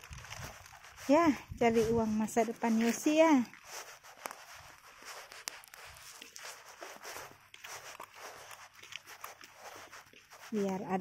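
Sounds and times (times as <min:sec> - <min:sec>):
faint footsteps on asphalt: 0:00.0 - 0:11.0
tricycle rolling and rattling: 0:00.0 - 0:11.0.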